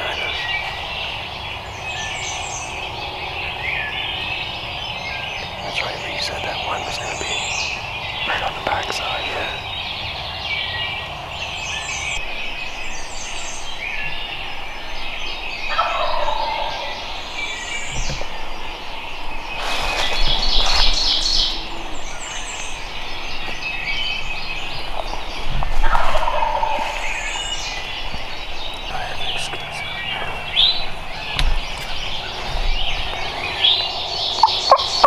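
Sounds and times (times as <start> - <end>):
songbirds chirping: 0.0 - 35.0
turkey gobbling: 15.7 - 16.9, 25.8 - 27.0, 34.4 - 35.0.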